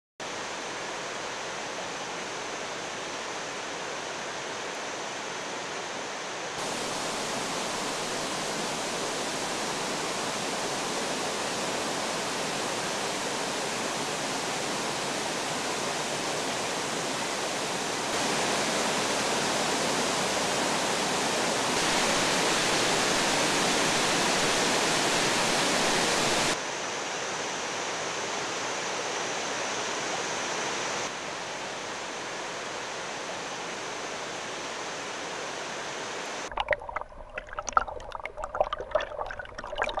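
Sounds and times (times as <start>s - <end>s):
waterfall rushing: 6.6s - 26.6s
underwater gurgling and bubbling: 36.5s - 40.0s.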